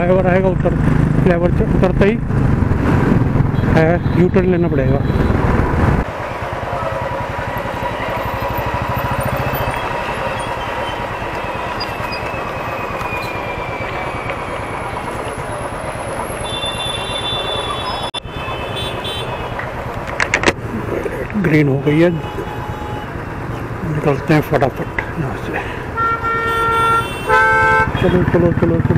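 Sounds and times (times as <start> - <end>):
hum of surrounding vehicles: 0.0 - 28.9
motorcycle engine idling: 6.2 - 12.0.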